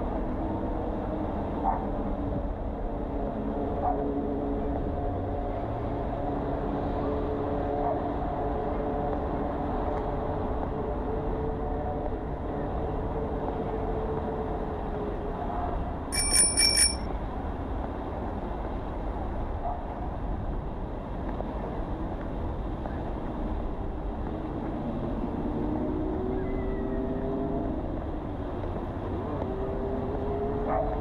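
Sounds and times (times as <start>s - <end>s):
high-pitched metallic dings: 16.2s - 17.1s
passing cars: 21.1s - 31.0s.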